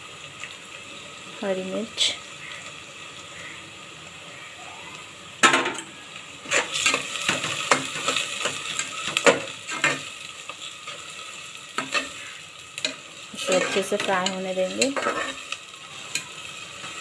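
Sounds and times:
food sizzling in oil: 0:00.0 - 0:17.0
metal spatula scraping a pot: 0:06.4 - 0:10.1, 0:11.8 - 0:16.3.

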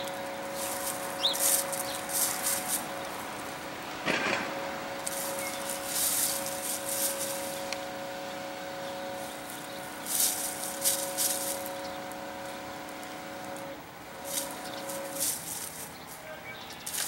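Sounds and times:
hens scratching in dry leaves: 0:00.0 - 0:17.0
steady mechanical hum: 0:00.0 - 0:17.0.

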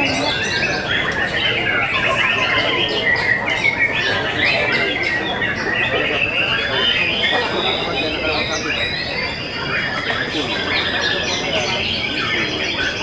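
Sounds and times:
birds singing whistles and chirps: 0:00.0 - 0:13.0.

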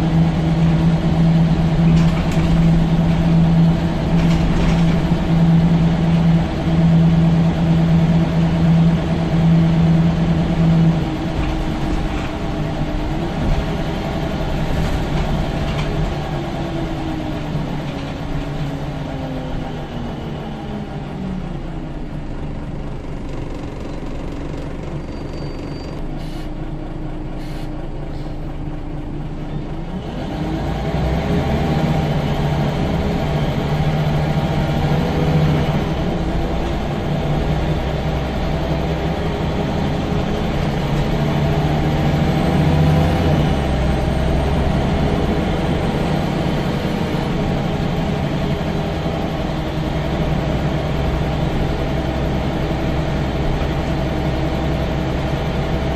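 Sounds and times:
bus engine pulling away: 0:00.0 - 0:55.9.

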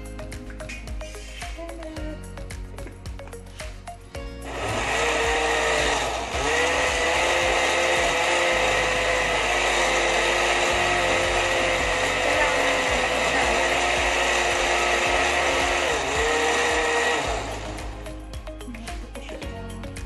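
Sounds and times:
blender running: 0:04.2 - 0:19.2.

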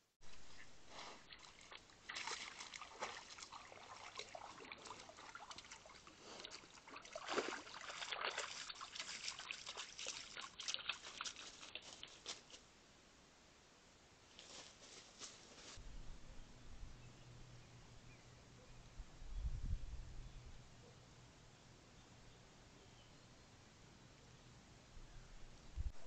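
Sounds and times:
pond water splashing and trickling: 0:00.2 - 0:12.6.

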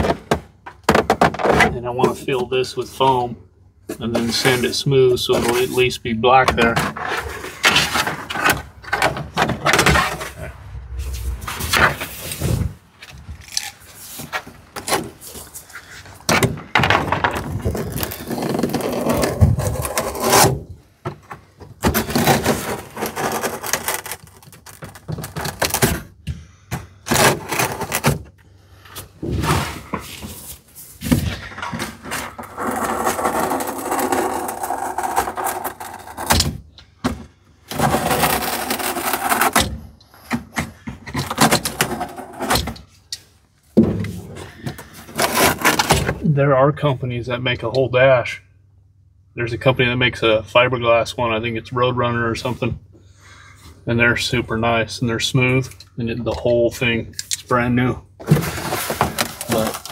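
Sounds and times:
plastic scraping on dashboard: 0:16.9 - 0:20.7, 0:21.8 - 0:26.0, 0:31.0 - 0:36.4, 0:37.7 - 0:39.7, 0:44.7 - 0:46.2.

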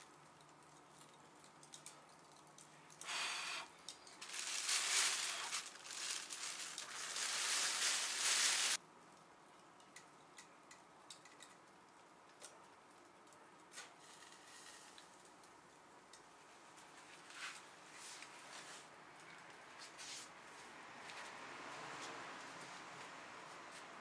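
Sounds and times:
fire hissing: 0:03.0 - 0:08.8.

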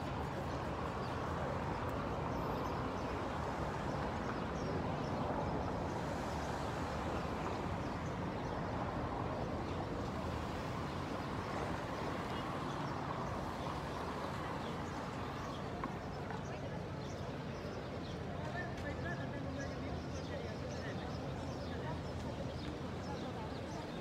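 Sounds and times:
distant traffic hum: 0:00.0 - 0:24.0.

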